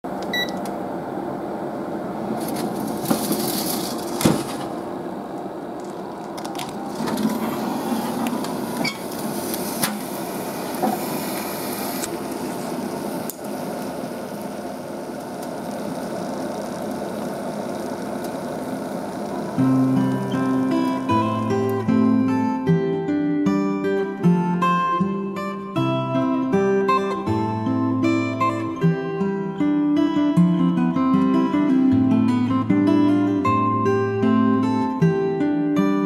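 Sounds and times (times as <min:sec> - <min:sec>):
shellfish sizzling on a grill: 0:08.6 - 0:22.2.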